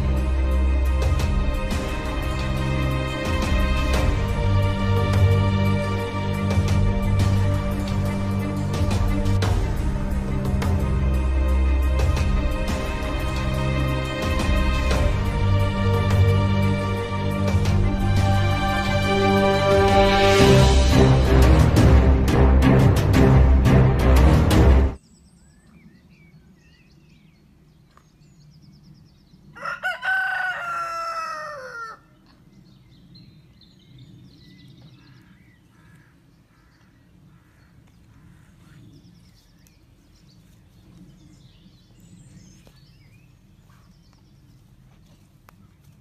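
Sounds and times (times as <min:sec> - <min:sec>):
rooster crowing: 0:29.5 - 0:32.2.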